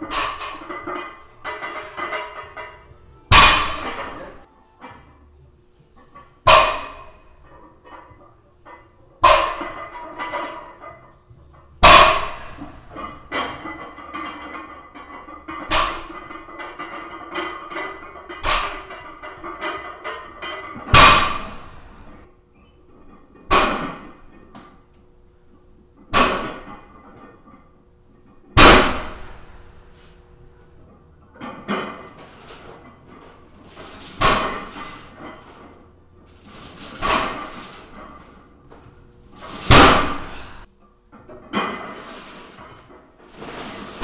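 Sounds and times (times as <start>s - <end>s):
barbell plates banging on floor: 0.0s - 4.4s, 11.8s - 14.4s, 15.3s - 21.9s, 23.4s - 24.2s, 26.1s - 26.8s, 33.8s - 35.6s, 39.4s - 40.6s
barbell plates thudding on floor: 3.3s - 4.4s, 11.8s - 13.8s, 20.8s - 21.9s, 28.6s - 29.4s, 33.7s - 35.6s, 39.4s - 40.6s.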